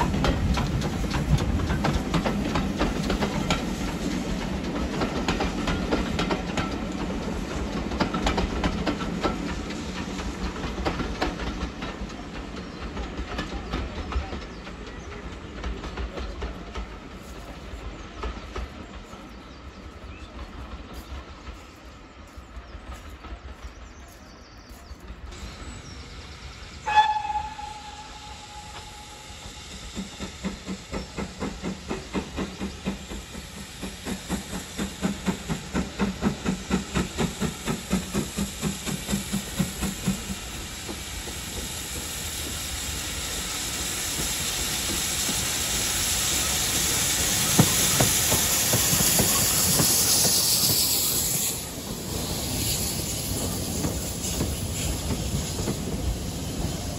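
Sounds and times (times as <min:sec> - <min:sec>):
hiss of steam: 0:00.0 - 0:23.7, 0:25.2 - 0:56.9
train rumbling past: 0:00.0 - 0:56.9
steam locomotive whistle: 0:26.7 - 0:29.8.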